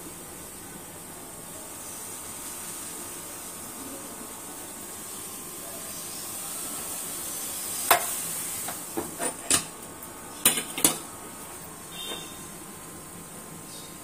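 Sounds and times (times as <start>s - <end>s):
gas burner hiss: 0.0s - 14.0s
metal pots clanking: 9.0s - 9.7s, 10.4s - 11.1s.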